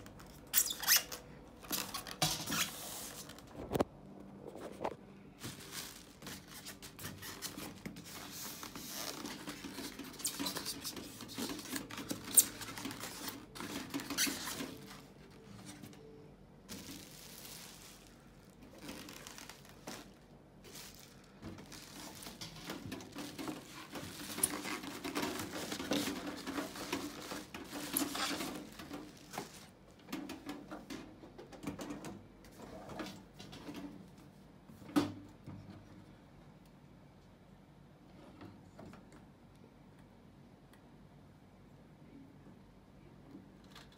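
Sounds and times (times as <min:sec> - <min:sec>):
plastic film crinkling: 0:05.4 - 0:16.1, 0:16.7 - 0:30.3.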